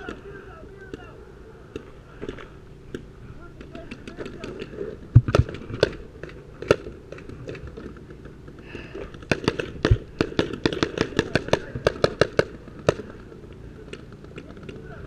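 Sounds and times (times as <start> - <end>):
paintball marker firing: 1.7 - 13.2.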